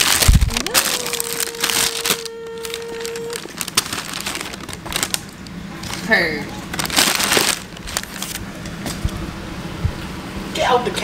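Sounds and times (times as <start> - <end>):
paper rustling and crinkling: 0.0 - 6.1, 6.7 - 9.0.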